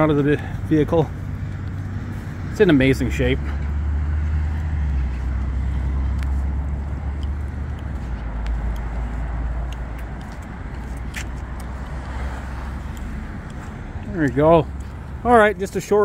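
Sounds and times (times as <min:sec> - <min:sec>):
faint ticks: 0:06.1 - 0:12.2, 0:12.8 - 0:15.0.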